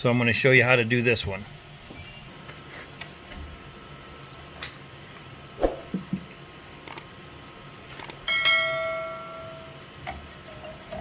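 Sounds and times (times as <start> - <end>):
quick clicks: 6.8 - 7.1, 8.0 - 8.2
bell ding: 8.3 - 9.8.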